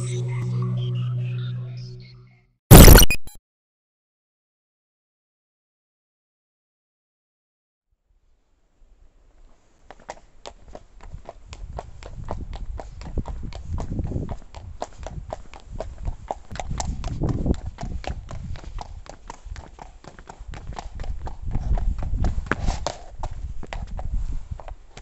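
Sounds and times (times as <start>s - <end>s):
horse hooves clip-clopping on asphalt: 9.4s - 25.0s.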